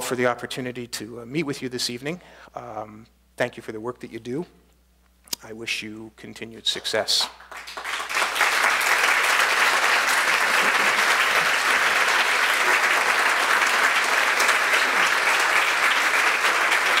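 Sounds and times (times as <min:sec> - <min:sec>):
audience applauding: 0:07.2 - 0:17.0.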